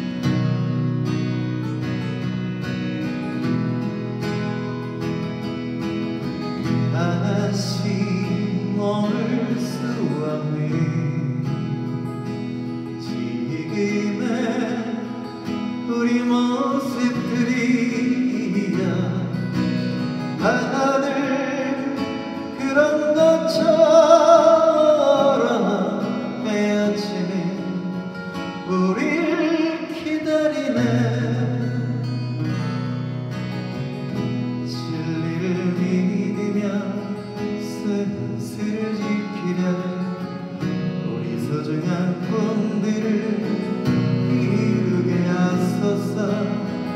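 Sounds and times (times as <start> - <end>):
acoustic guitar strumming: 0.0 - 46.9
man singing into microphone: 6.8 - 12.0, 12.8 - 32.2, 34.6 - 46.9.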